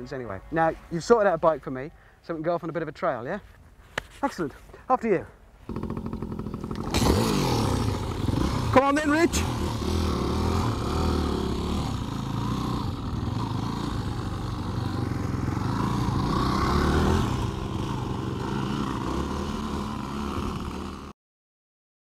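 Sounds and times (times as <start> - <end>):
dirt bike engines revving: 5.7 - 21.1.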